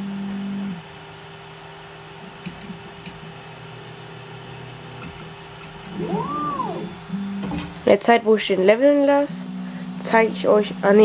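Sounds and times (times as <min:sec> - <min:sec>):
stepper motor hum: 0:04.2 - 0:07.9
stepper motor whine: 0:05.8 - 0:07.7.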